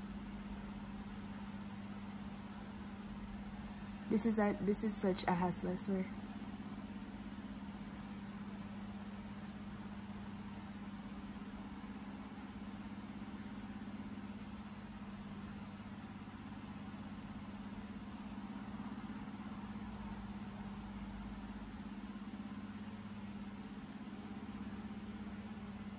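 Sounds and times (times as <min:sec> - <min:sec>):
steady low hum: 0:00.0 - 0:25.9.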